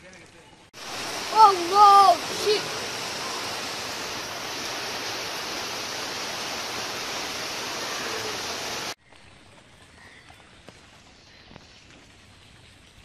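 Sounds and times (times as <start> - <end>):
steady hiss: 0.8 - 9.0.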